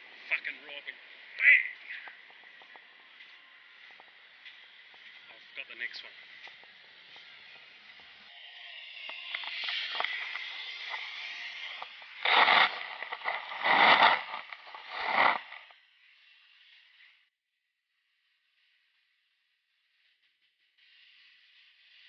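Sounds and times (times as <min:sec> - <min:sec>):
stones scraping against camera: 0:09.0 - 0:15.7.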